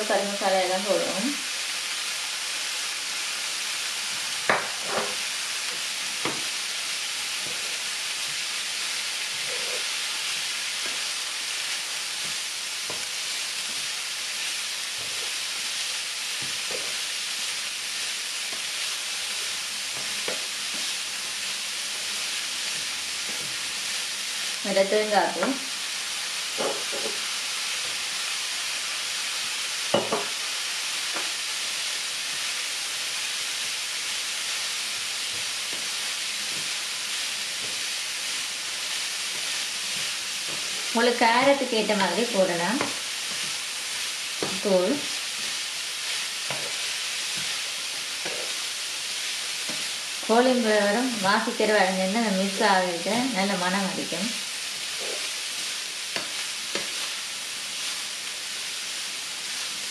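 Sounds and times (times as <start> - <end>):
food sizzling in oil: 0.0 - 59.9
spatula scraping and tapping pan: 4.5 - 6.5, 7.4 - 8.5, 12.2 - 13.9, 16.4 - 17.0, 19.3 - 21.0, 22.7 - 23.6, 26.6 - 27.2, 29.9 - 30.4, 35.3 - 36.8, 39.2 - 41.0, 42.8 - 43.6, 44.4 - 50.3, 54.8 - 57.2.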